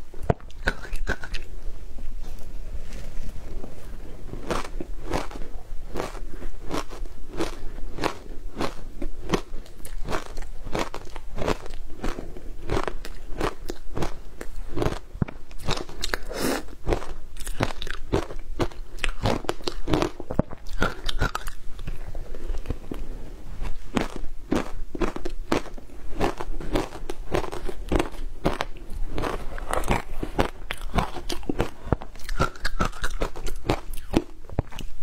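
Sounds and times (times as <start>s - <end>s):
ice crunching in mouth: 23.7s - 34.9s.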